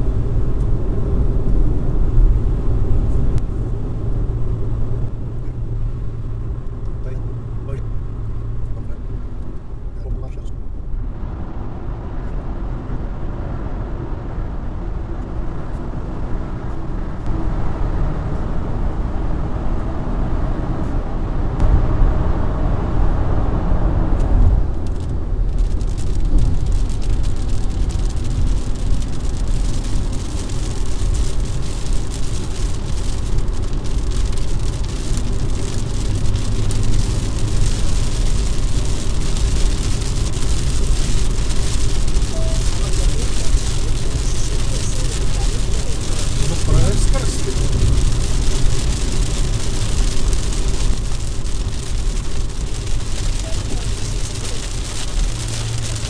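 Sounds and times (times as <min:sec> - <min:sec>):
raindrops hitting car: 0:00.0 - 0:14.3, 0:24.1 - 0:56.0
car road and engine noise: 0:00.0 - 0:56.0.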